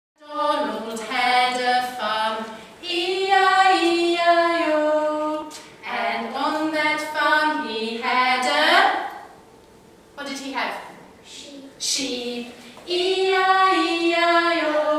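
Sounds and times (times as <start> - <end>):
woman singing unaccompanied: 0.2 - 9.1, 11.9 - 14.9.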